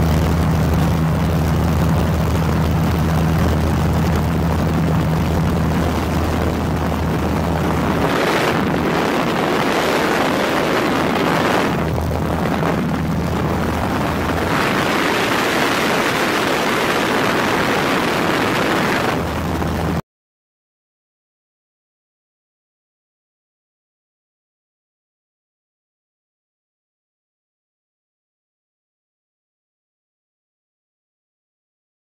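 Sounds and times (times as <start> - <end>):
aircraft engine hum: 0.0 - 20.0
rushing air: 0.0 - 20.0.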